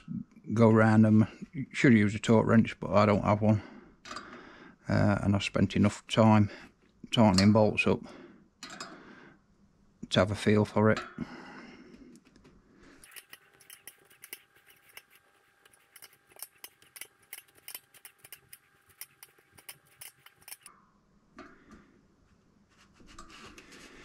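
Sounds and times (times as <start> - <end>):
rapid ratchet clicking: 13.0 - 20.7.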